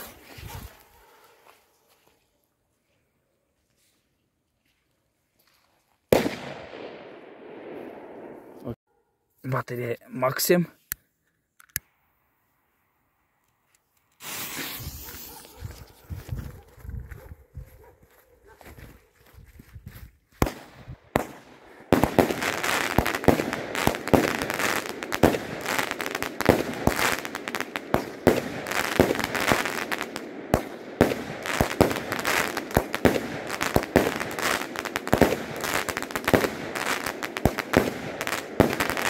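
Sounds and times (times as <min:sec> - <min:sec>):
fireworks crackling: 0:06.1 - 0:06.9, 0:14.1 - 0:16.1, 0:20.4 - 0:39.0
fireworks shots and bursts: 0:06.1 - 0:08.7, 0:14.2 - 0:15.8, 0:20.4 - 0:39.0.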